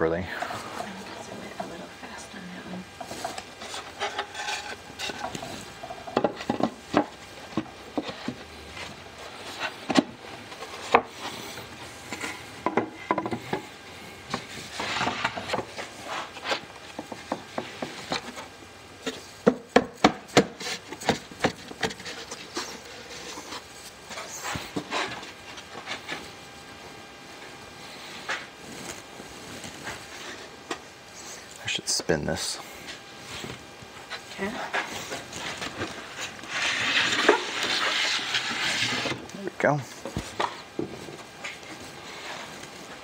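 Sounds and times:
wood scraping and rubbing: 3.0s - 19.7s, 20.4s - 26.4s, 32.6s - 39.4s.

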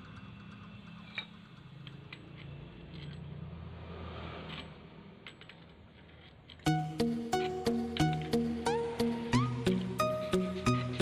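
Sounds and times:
metallic clicks of pipe fittings: 0.0s - 3.4s.

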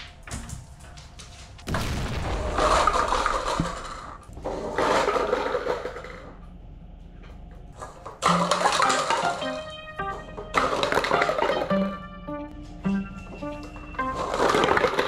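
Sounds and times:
paper cups clattering on wooden floor: 2.7s - 6.3s, 7.8s - 9.7s, 10.4s - 11.9s, 14.0s - 15.0s.

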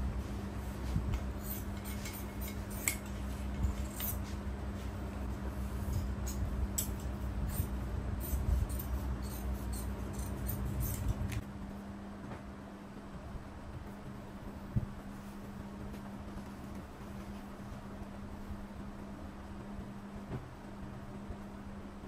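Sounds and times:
steady low hum: 0.0s - 22.0s
small scrapes: 0.8s - 5.0s.

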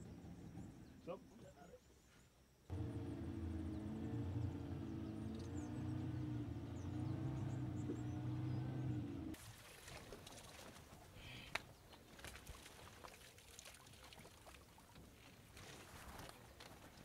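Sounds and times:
rustling and splashing water: 9.3s - 17.0s
small crackles: 10.1s - 17.0s.

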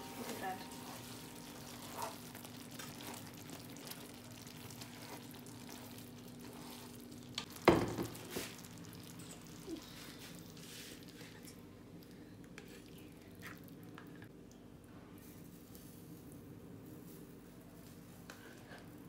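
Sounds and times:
wooden spatula scraping a pan: 0.0s - 7.2s
vegetables sizzling in a frying pan: 0.0s - 9.8s.

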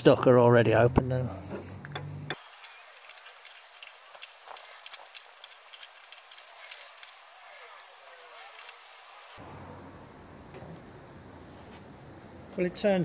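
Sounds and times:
engine clicks turned by hand: 1.9s - 8.8s.

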